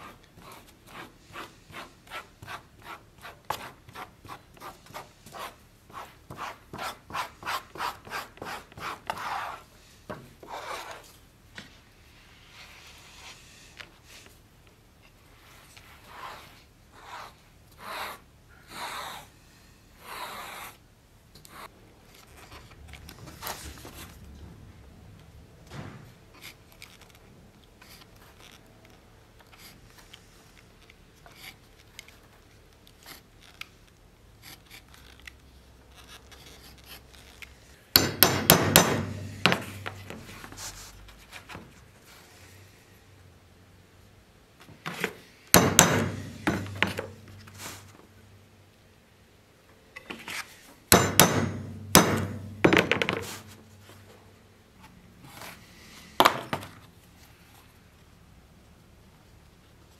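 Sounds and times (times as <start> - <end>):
sharp knocks: 45.6 - 47.1, 51.0 - 53.2.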